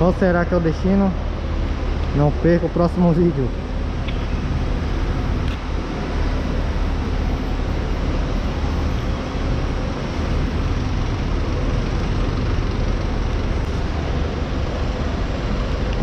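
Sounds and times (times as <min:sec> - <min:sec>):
diesel engine rumbling: 0:00.0 - 0:16.0.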